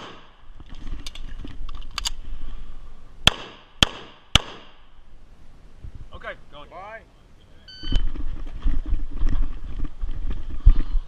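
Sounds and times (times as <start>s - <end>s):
gun handling clicks and rustling: 0.6s - 2.3s
pistol shots: 3.2s - 4.8s.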